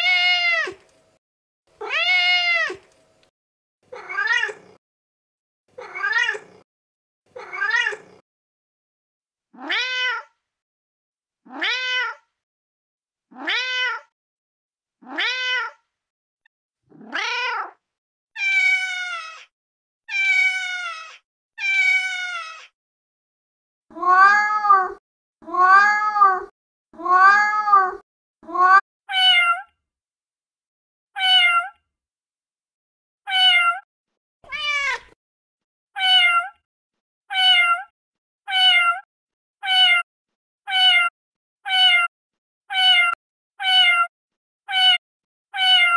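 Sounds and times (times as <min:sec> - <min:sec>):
cat meowing: 0:00.0 - 0:00.8, 0:01.8 - 0:02.8, 0:03.9 - 0:04.8, 0:05.8 - 0:06.6, 0:07.4 - 0:08.2, 0:09.6 - 0:10.3, 0:11.5 - 0:12.2, 0:13.3 - 0:14.1, 0:15.0 - 0:15.8, 0:17.0 - 0:17.8, 0:18.4 - 0:19.5, 0:20.1 - 0:22.7, 0:23.9 - 0:29.7, 0:31.2 - 0:31.8, 0:33.3 - 0:35.2, 0:36.0 - 0:36.6, 0:37.3 - 0:37.9, 0:38.5 - 0:40.0, 0:40.7 - 0:42.1, 0:42.7 - 0:44.1, 0:44.7 - 0:45.9.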